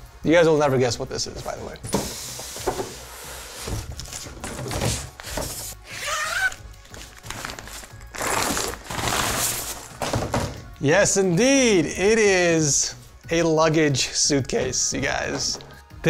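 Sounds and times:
background music: 0.0 - 16.0
cardboard and plastic rustling: 1.4 - 10.7
suitcase knocking on table: 10.0 - 10.7.

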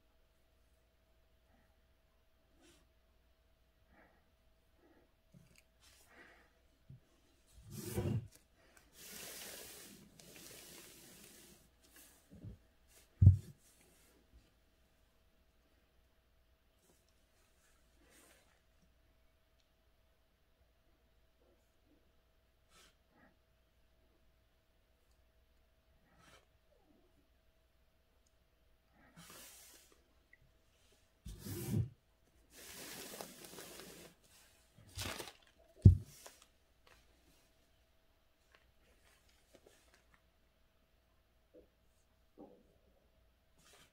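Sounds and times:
paper sliding across a table: 7.7 - 13.6, 31.3 - 34.6.

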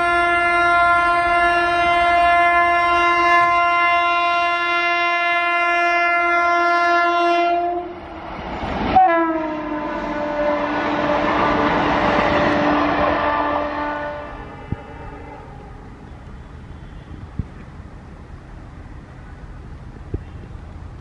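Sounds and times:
train air horn blast: 0.0 - 8.0, 8.9 - 15.7, 16.3 - 17.4
train coaches rushing past: 7.6 - 21.0.

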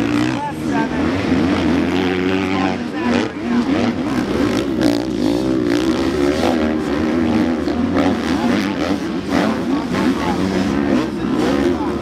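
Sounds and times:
motocross bike engines revving: 0.0 - 12.0.

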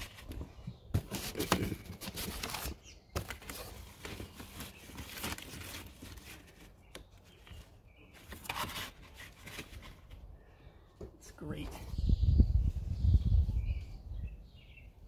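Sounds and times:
cardboard rustling and scraping: 0.0 - 10.2.

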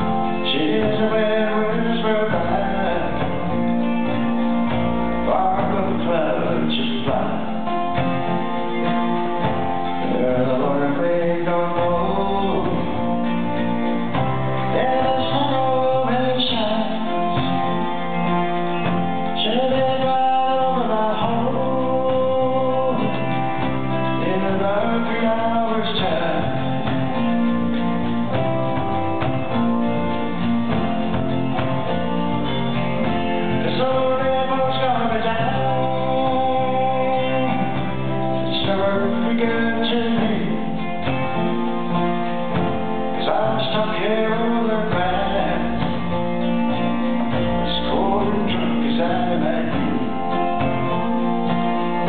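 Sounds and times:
man singing: 0.0 - 13.5, 14.2 - 27.4, 32.5 - 42.0, 42.8 - 52.0
drums: 0.0 - 52.0
electric bass: 0.0 - 52.0
electric guitar: 0.0 - 52.0
keyboard: 0.0 - 52.0
strummed acoustic guitar: 0.0 - 52.0.

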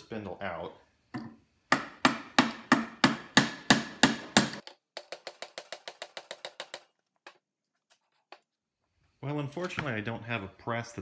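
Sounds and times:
hammer striking steel: 1.7 - 4.6.

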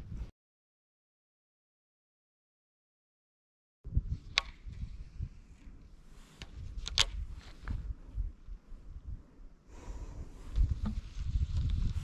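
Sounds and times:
wind rumbling on microphone: 0.0 - 0.3, 3.8 - 12.0.

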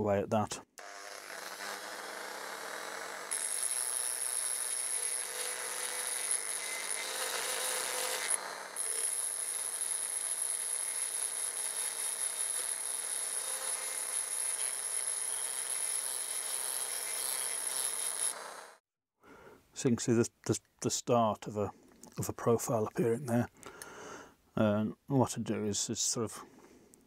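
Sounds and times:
rotary tool grinding metal: 0.8 - 18.8.

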